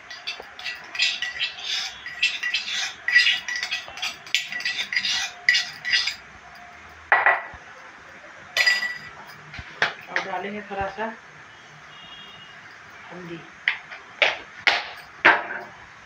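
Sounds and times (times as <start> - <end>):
spoon clinking in metal cup: 0.0 - 6.8, 8.6 - 9.4.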